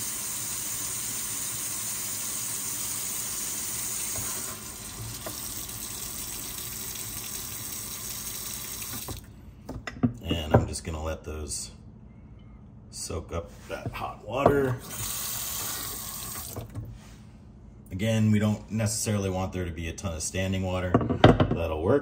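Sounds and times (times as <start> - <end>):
tap water splashing into sink: 4.0 - 9.3, 15.9 - 16.8.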